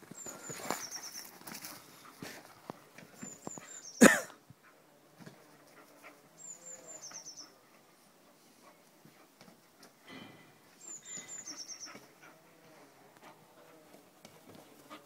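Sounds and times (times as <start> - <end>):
bird chirping: 0.1 - 1.3, 3.2 - 4.1, 6.4 - 7.6, 10.7 - 12.1.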